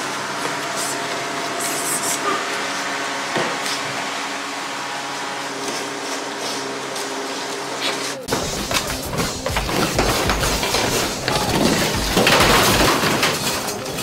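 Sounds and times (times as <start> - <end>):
low hum: 8.2 - 14.0.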